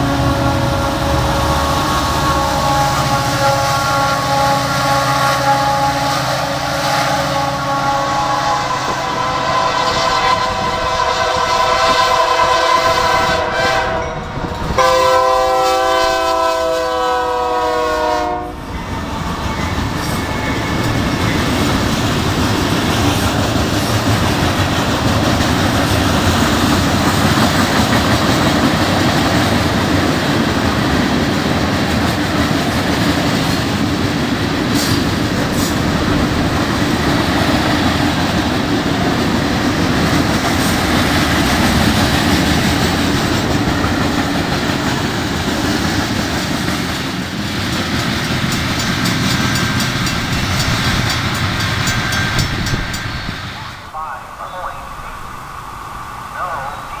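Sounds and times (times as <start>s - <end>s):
locomotive horn blowing: 0.0s - 14.2s, 14.8s - 18.7s
train cars rumbling on rails: 0.0s - 57.0s.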